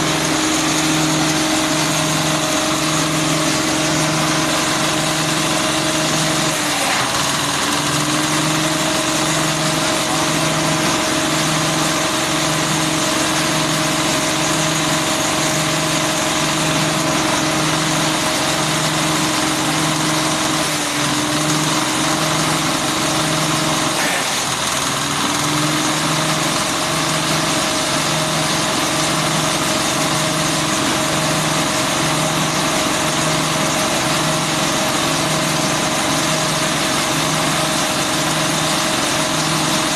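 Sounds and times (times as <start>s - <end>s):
diesel engine running chopper: 0.0s - 39.9s.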